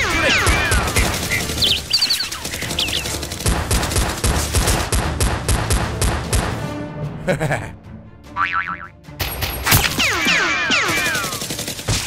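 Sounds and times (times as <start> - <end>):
rapid gunfire sound effects: 0.0 - 6.6, 9.9 - 12.0.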